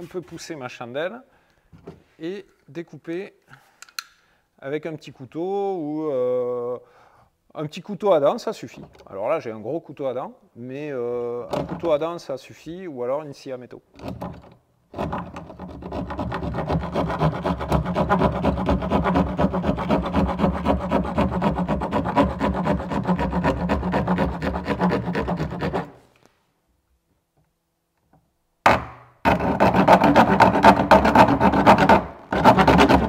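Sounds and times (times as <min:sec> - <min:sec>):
serrated knife sawing plastic: 0:15.0 - 0:26.0, 0:29.3 - 0:33.0.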